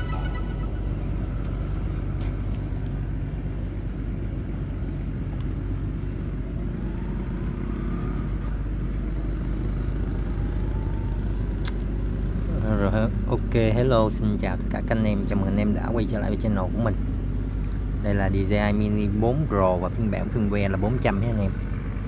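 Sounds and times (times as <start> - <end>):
faint rising tones: 0.0 - 3.2, 5.8 - 13.4
low outdoor rumble: 0.0 - 22.0.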